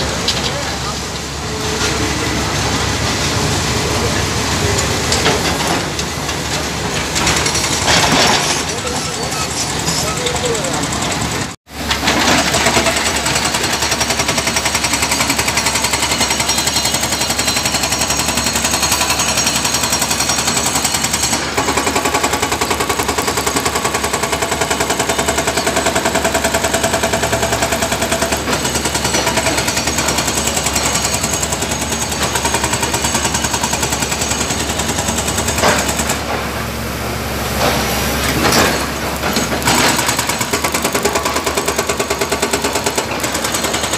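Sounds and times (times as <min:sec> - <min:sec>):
hydraulic breaker hammering: 0:37.6 - 0:43.9.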